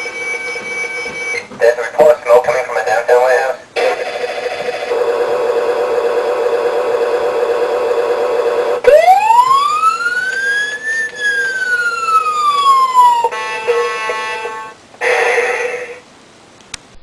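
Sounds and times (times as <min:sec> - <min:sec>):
toy electronic siren: 0:08.8 - 0:14.6.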